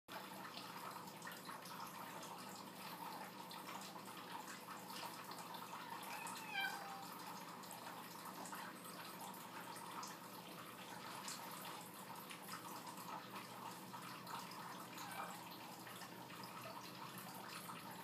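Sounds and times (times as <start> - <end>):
faint room noise: 0.1 - 18.0
cat meowing: 5.8 - 7.2, 15.0 - 15.4.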